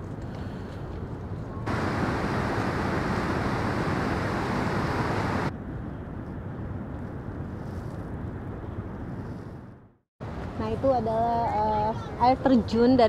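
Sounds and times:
wind: 0.0 - 13.0
river water rushing: 1.7 - 5.5.

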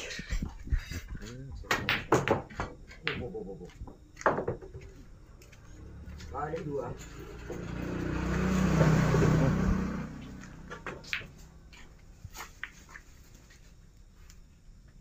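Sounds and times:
vehicle passing by: 5.5 - 11.7.

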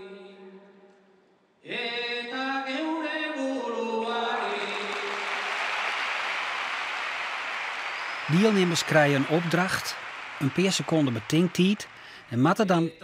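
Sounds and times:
person singing a cappella: 0.0 - 0.8, 1.6 - 5.2
crowd applause: 4.4 - 12.7.

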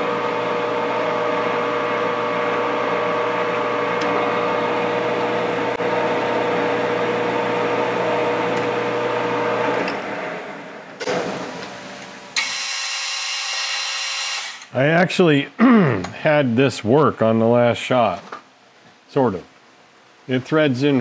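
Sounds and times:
lathe running with whining tones: 0.0 - 10.0.

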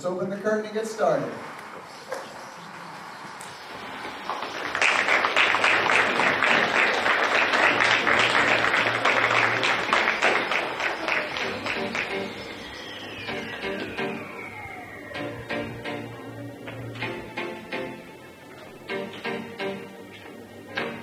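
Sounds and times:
audience applauding: 3.4 - 17.3.

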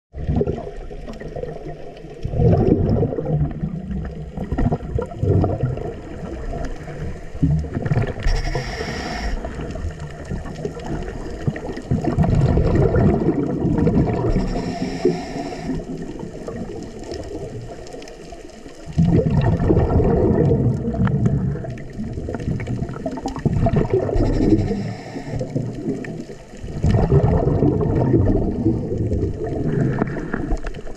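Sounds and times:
exhaled bubbles gurgling underwater: 0.1 - 30.9
regulator inhalation hiss: 8.2 - 9.6, 14.3 - 16.0, 24.2 - 25.6.

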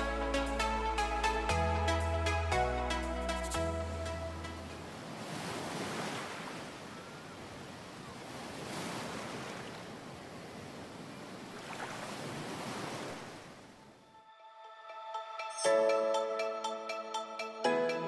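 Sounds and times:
ocean surf washing in: 3.2 - 7.0.

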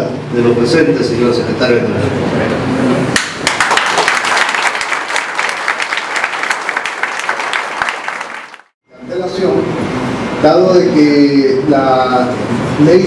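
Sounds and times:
audience applauding: 3.2 - 8.7.

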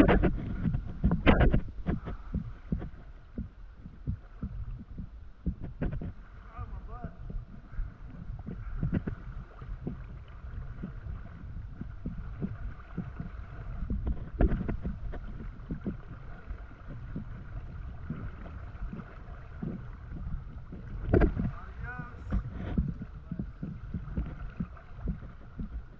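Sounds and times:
splashes and knocks in water: 0.0 - 25.9
cave river water rushing: 1.2 - 25.9.

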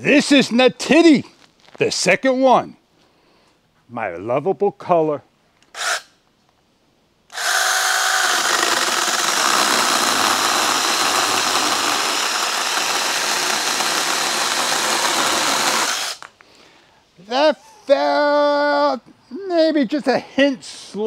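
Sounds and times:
electric chainsaw cutting branch: 5.7 - 6.1, 7.3 - 16.3.

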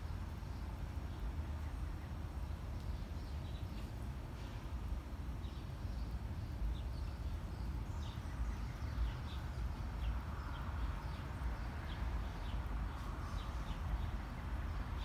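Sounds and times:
small birds chirping: 5.2 - 15.0.

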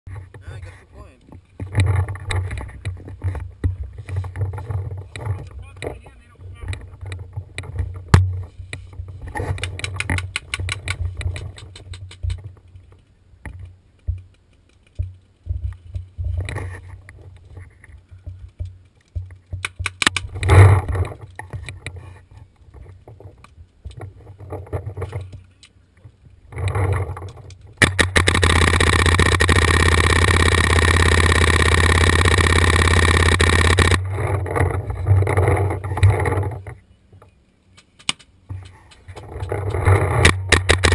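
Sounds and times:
gear scraping against rock: 20.2 - 25.5, 26.5 - 36.9, 38.8 - 40.9.

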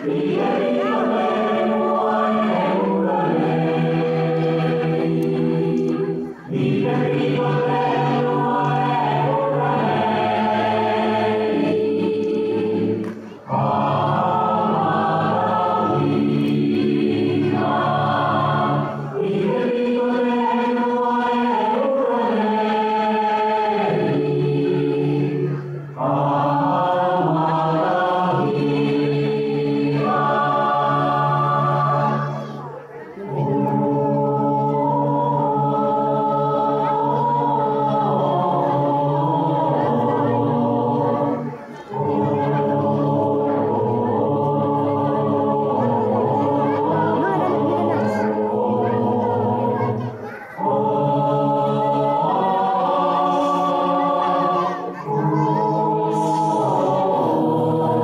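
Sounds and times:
choir singing held chords: 0.0 - 58.0.

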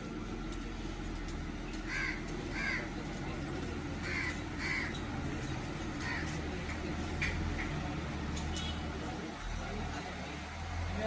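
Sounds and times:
car engine idling: 0.0 - 11.0
crow cawing: 1.8 - 3.0, 4.0 - 5.0, 6.0 - 6.4.

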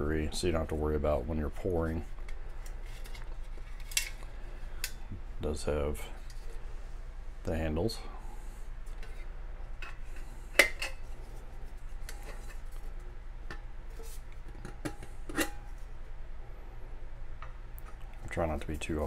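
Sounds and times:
metal lid clinking and scraping: 13.5 - 15.8.

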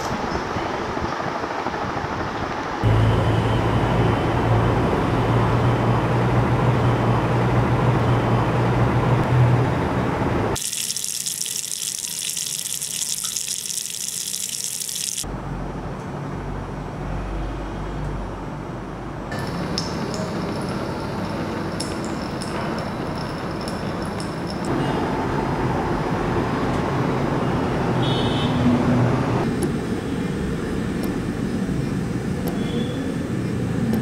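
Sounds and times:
tap water running into sink: 10.6 - 15.2.

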